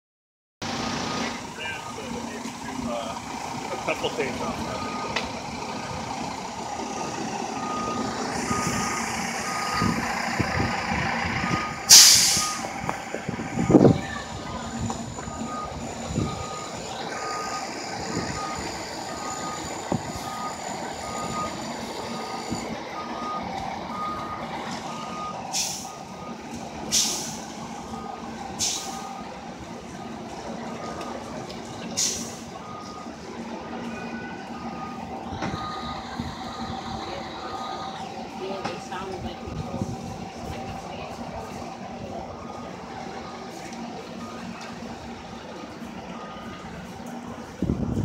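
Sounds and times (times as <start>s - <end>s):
diesel engine running: 0.6s - 48.0s
reversing alarm beeping: 0.7s - 2.8s, 3.7s - 30.2s, 31.2s - 48.0s
air brake hisses: 11.9s - 12.7s, 25.5s - 25.9s, 26.9s - 27.4s, 28.6s - 29.0s, 32.0s - 32.4s.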